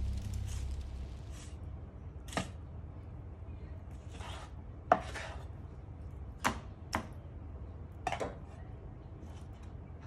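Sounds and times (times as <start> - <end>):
knife scrape: 4.1 - 5.5.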